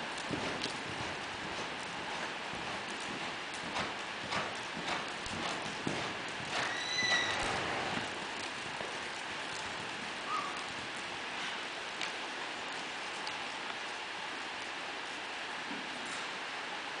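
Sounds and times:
hoofbeats on sand: 0.0 - 11.8.

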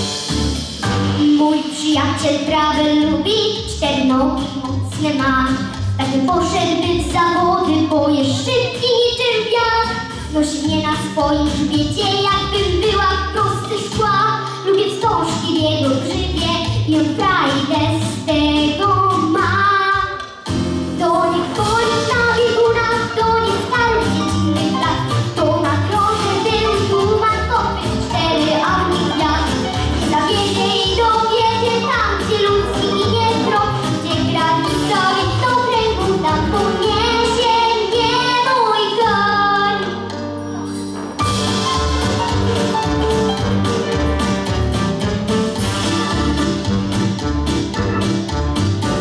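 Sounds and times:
backing music with steady beat: 0.0 - 49.0
girl singing pop song: 1.1 - 40.2.

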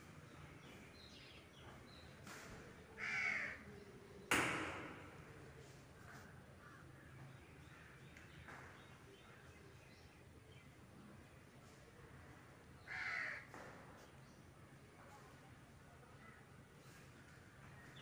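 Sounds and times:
crow cawing: 3.0 - 3.6, 12.8 - 13.5
sharp bang: 4.3 - 5.3.

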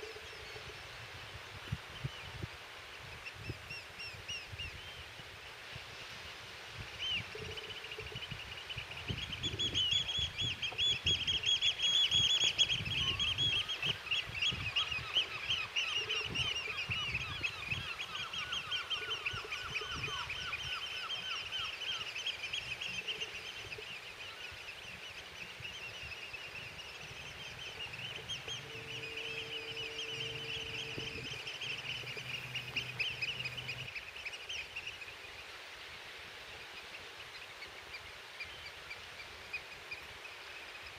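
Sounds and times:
wind rumbling on microphone: 0.0 - 21.6, 22.6 - 33.9
flock of birds calling: 7.0 - 35.1
low steady drone: 26.9 - 33.9.

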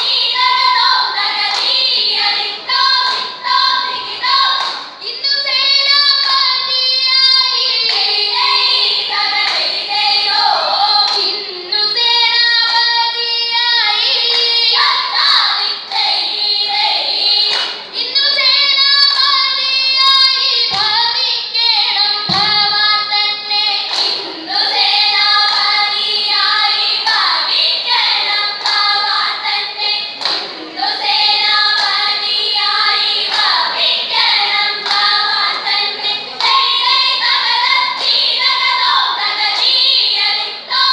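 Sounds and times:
girls singing together: 0.0 - 40.9
dull thumps: 22.3 - 22.7.

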